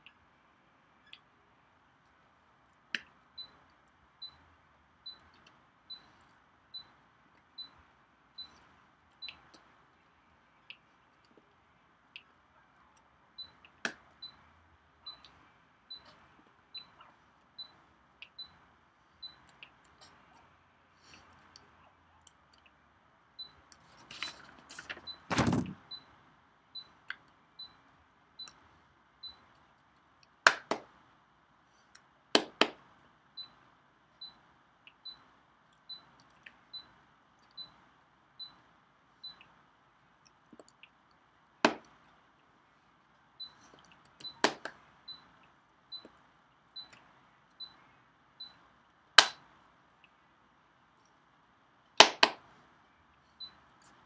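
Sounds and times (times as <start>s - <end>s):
hands clapping together: 30.5s - 30.8s, 52.0s - 52.4s.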